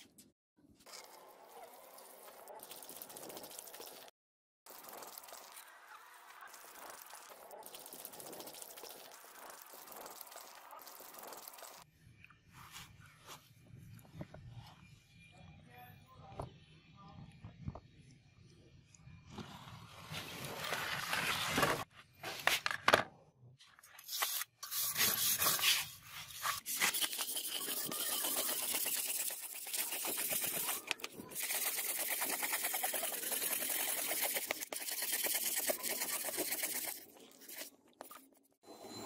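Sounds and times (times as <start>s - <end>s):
wire brush scrubbing metal blade: 24.2s - 37.7s.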